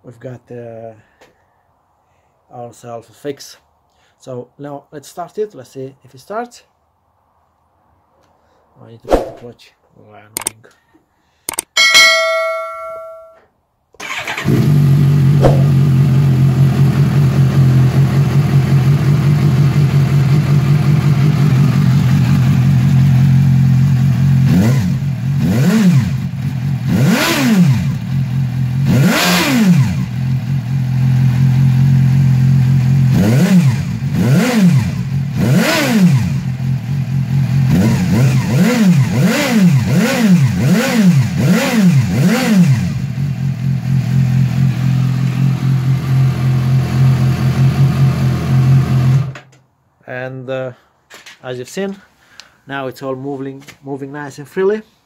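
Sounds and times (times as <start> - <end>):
motorcycle engine idling and revving: 14.0 - 49.4.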